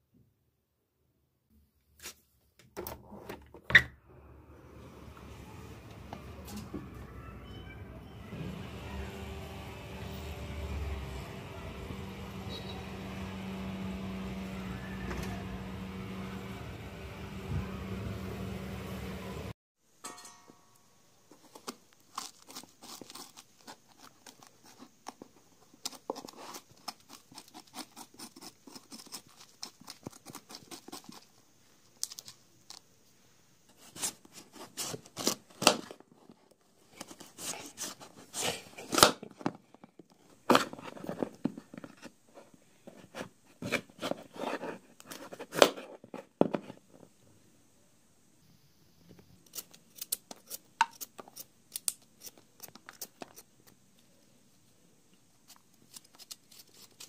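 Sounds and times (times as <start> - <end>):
paper cutting and crinkling: 21.3 - 32.8, 33.7 - 46.9, 49.4 - 53.8, 55.4 - 57.0
paper snipping and rustling: 55.4 - 57.0.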